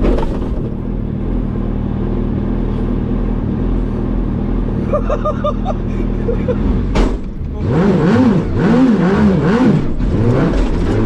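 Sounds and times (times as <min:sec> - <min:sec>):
motorcycle engine running steadily: 0:00.7 - 0:07.8.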